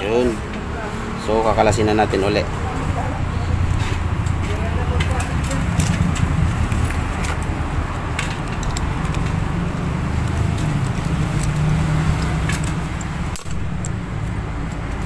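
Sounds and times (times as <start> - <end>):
low rumble of road traffic: 0.0 - 15.0
light metallic clicks: 3.7 - 15.0.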